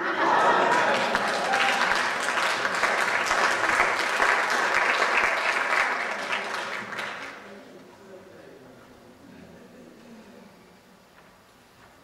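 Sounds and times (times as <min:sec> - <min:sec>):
congregation applauding: 0:00.0 - 0:07.5.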